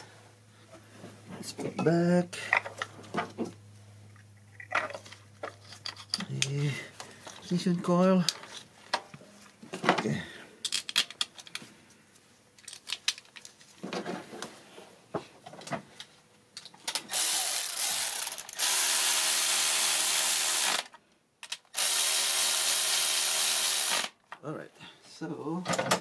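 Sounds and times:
clicks and knocks handling parts: 1.4 - 7.5, 8.2 - 17.1, 21.4 - 21.7, 25.6 - 26.0
electric ratchet running: 17.1 - 20.9, 21.7 - 24.2.

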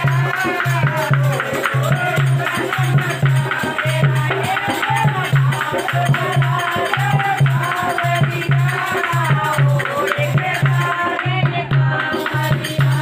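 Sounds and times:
hand drum beat: 0.0 - 13.0
rattling hand percussion: 0.0 - 13.0
women singing: 0.0 - 13.0.

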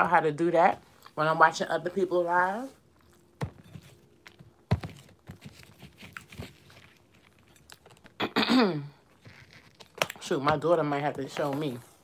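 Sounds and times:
chewing crunches: 5.6 - 8.3, 9.0 - 10.2.

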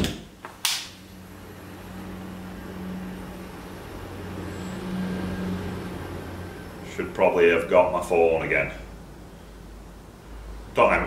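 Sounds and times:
blowtorch lighting pop: 0.0 - 1.0.

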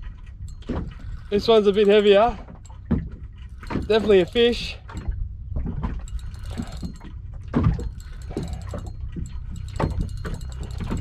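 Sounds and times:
wind and water rumble: 0.0 - 11.0
short knocks and clicks: 0.6 - 11.0
spinning reel winding: 1.1 - 2.4, 3.6 - 4.8, 6.0 - 7.1, 7.8 - 11.0.

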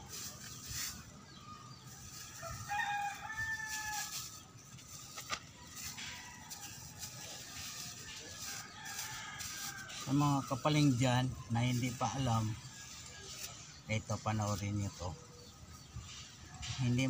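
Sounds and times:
plastic wrap crackling: 1.8 - 10.5
rooster crowing: 2.4 - 4.2.

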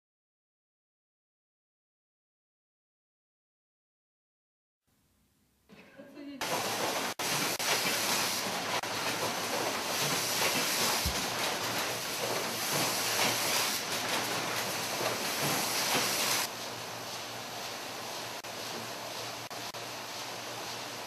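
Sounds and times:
automated machinery hiss and clatter: 6.4 - 21.0.

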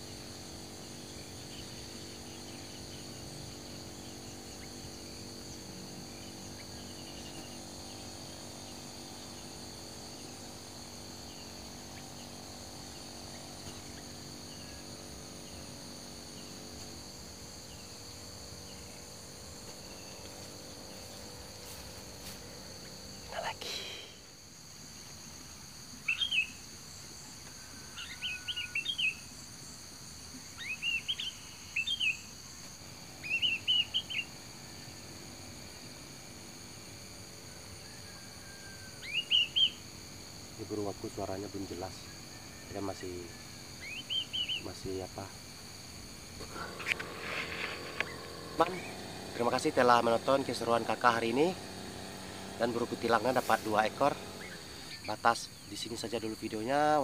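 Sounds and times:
insects buzzing: 0.0 - 57.0
bird chirpy calls: 1.0 - 9.5, 26.0 - 26.6, 28.0 - 29.2, 30.5 - 32.3, 33.2 - 34.4, 39.0 - 39.9, 43.8 - 44.8, 46.4 - 49.3, 50.1 - 55.2.

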